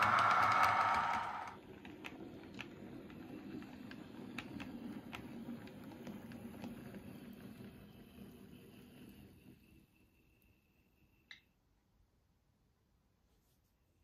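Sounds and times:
model train rumbling on track: 0:00.0 - 0:09.4.

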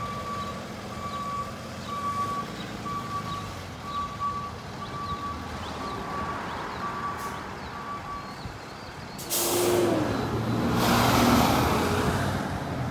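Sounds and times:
reversing alarm beeping: 0:00.0 - 0:08.4
road and wind noise: 0:00.0 - 0:12.9.

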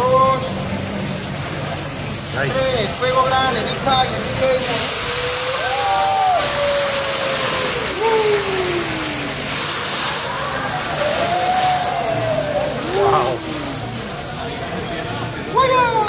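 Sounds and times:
griddle flame rushing hiss: 0:00.0 - 0:15.6
people whooping: 0:04.8 - 0:14.4.

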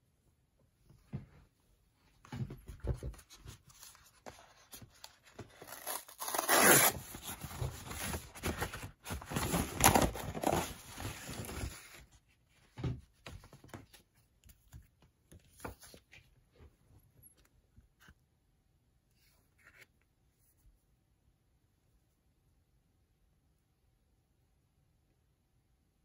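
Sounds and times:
paper rustling: 0:02.5 - 0:12.2
paper envelope tearing: 0:05.2 - 0:11.6.

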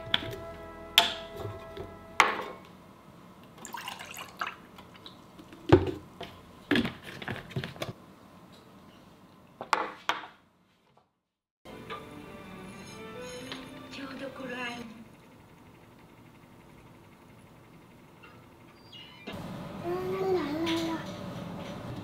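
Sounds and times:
juice pouring into a mug: 0:03.6 - 0:05.1.

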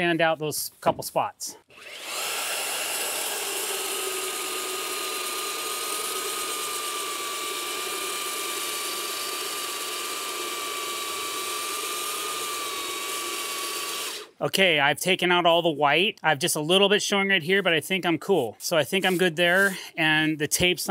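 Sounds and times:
belt sander whining: 0:01.7 - 0:14.4.

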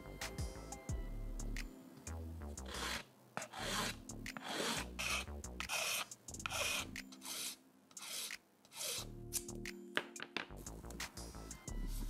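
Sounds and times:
needle file rasping on plastic: 0:02.6 - 0:09.1.

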